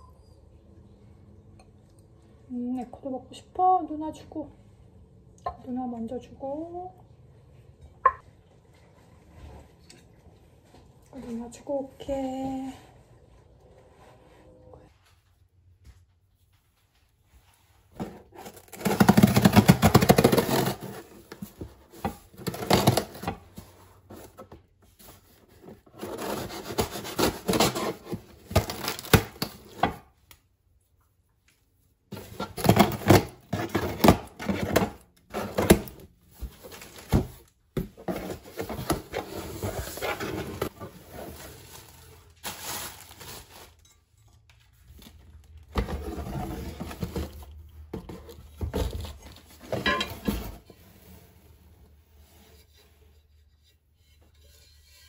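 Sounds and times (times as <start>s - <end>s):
rubbing and scraping: 45.8s - 55.0s.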